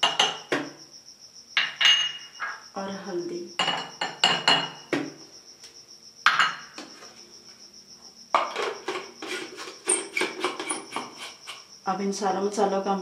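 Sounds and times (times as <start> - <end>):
glass bowl tapping glass jar: 1.6 - 2.6, 3.6 - 5.0, 6.3 - 6.8.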